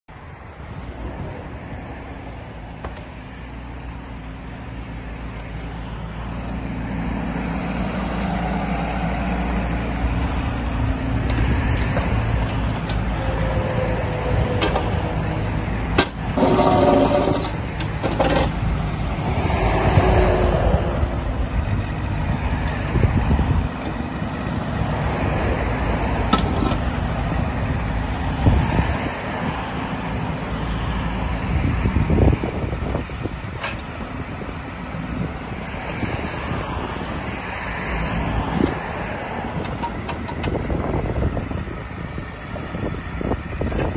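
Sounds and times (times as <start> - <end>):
excavator diesel engine running: 0.1 - 43.9
metal knocks and clanks: 15.9 - 18.6.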